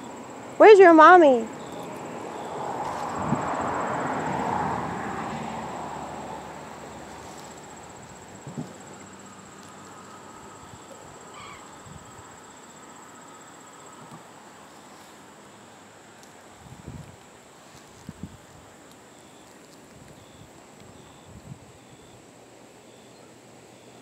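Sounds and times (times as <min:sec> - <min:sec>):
broad rushing noise: 0:01.4 - 0:12.4
soft knocks: 0:08.4 - 0:08.8.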